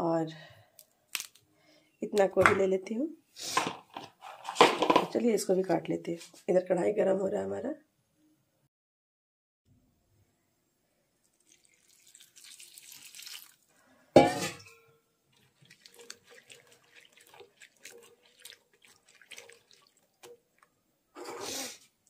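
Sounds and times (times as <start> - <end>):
vegetables mixed in steel bowl: 15.4 - 21.8.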